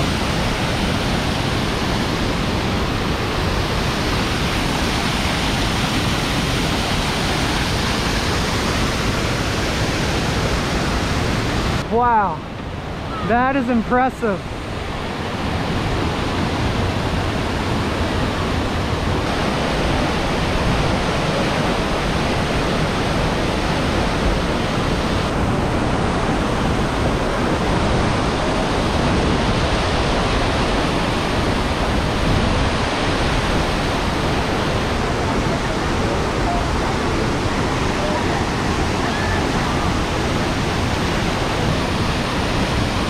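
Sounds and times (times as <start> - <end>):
waterfall rushing: 0.0 - 43.0.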